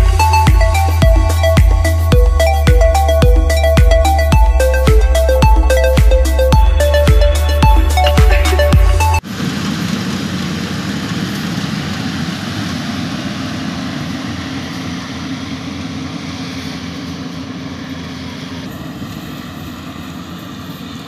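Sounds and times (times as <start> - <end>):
combine harvester droning: 0.0 - 21.0.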